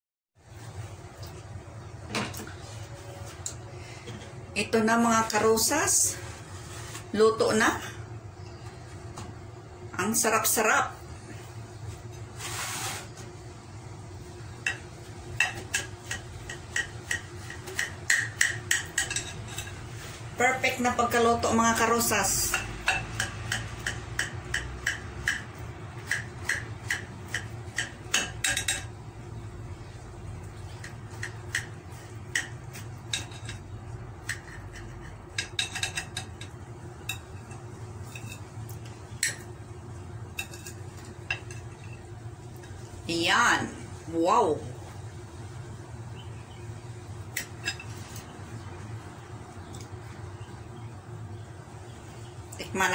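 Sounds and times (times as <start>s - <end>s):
low steady hum: 0.4s - 52.9s
short scraping hiss: 12.3s - 13.2s
knife tapping on a plate: 14.6s - 19.4s, 22.5s - 29.0s, 30.8s - 33.6s, 34.2s - 38.4s
knife scraping ceramic plate: 15.4s - 20.0s.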